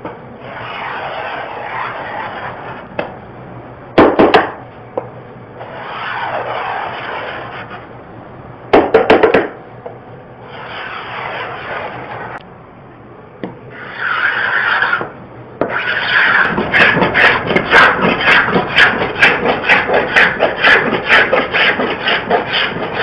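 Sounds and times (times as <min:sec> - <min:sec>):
tool scraping wooden door: 0:15.7 - 0:23.0.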